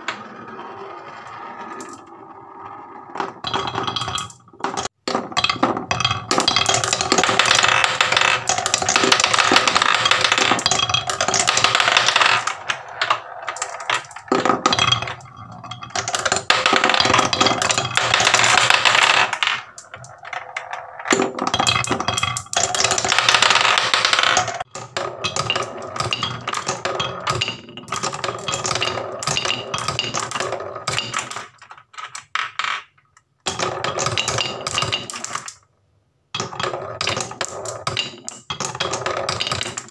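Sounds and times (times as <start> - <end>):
marbles rattling in wooden bowl: 5.9 - 20.9, 21.5 - 31.6.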